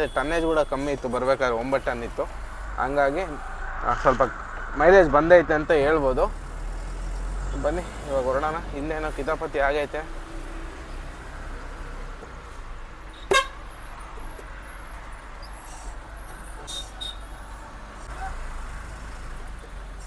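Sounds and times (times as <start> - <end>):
vehicle horn toot: 13.1 - 13.7, 16.6 - 17.3.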